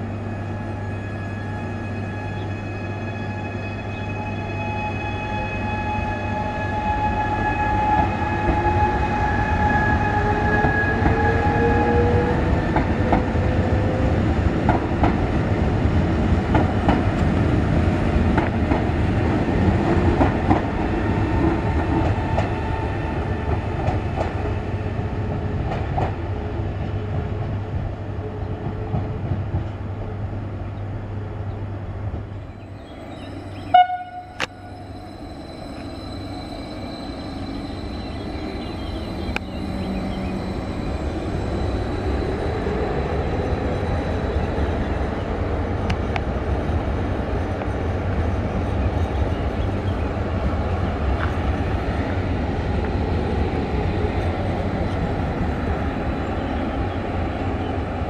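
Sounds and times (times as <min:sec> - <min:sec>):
electric train traction whine: 0:32.5 - 0:48.3.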